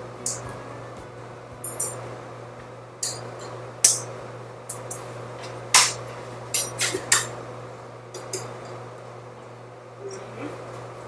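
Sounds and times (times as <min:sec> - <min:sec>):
steady low hum: 0:00.0 - 0:11.0
kitchen utensils and dishes clinking: 0:00.2 - 0:00.6, 0:03.0 - 0:04.1, 0:04.7 - 0:07.4, 0:08.1 - 0:08.8.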